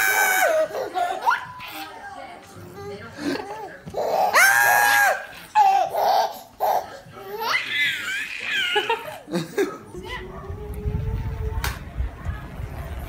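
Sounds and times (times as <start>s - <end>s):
baby laughing: 0.0s - 2.0s, 3.2s - 9.3s.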